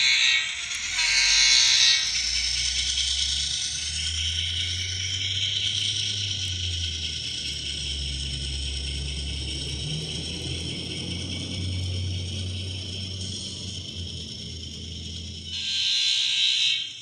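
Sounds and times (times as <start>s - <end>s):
diesel engine sound: 0.0s - 15.6s
model motor and wheels humming: 0.0s - 17.0s
model train horn blast: 15.5s - 17.0s.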